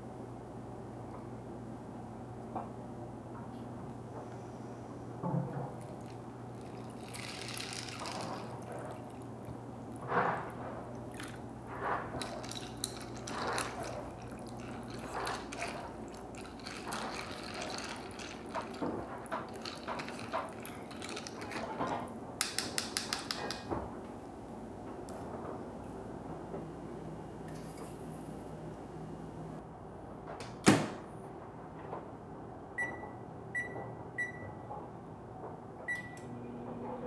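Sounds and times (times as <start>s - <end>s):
water pouring into cup: 5.7s - 11.5s, 12.1s - 22.1s
plastic spoon stirring pasta: 5.8s - 9.6s, 10.3s - 23.7s.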